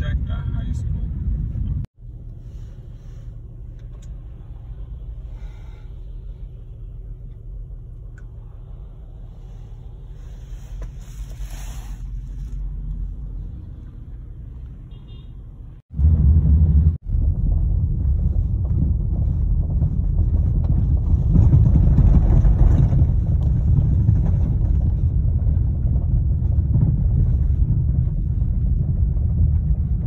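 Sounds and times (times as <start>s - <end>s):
car road rumble: 0.0s - 30.0s.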